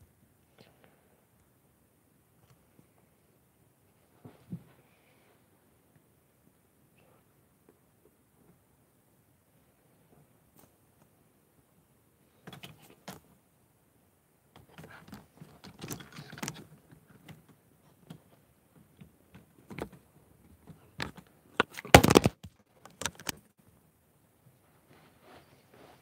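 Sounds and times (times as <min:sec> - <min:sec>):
handling clicks and rustles: 0:14.5 - 0:23.5.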